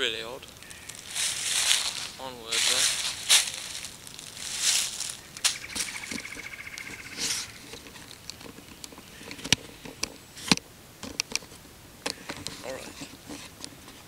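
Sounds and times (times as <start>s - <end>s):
footsteps crunching dry leaves: 0.2s - 9.8s.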